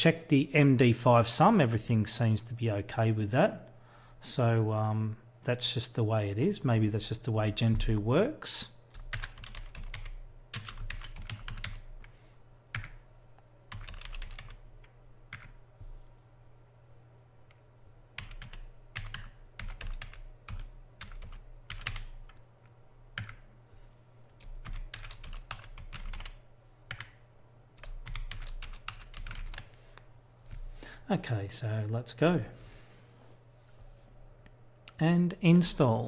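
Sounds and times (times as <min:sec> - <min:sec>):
typing on a computer keyboard: 0:08.9 - 0:11.9, 0:12.7 - 0:13.0, 0:13.7 - 0:14.6, 0:18.2 - 0:22.4, 0:23.2 - 0:23.5, 0:24.4 - 0:27.2, 0:27.8 - 0:29.7.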